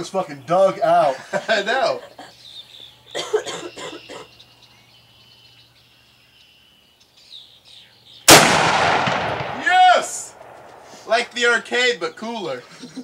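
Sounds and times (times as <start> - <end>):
rifle shot with echo: 8.3 - 11.4.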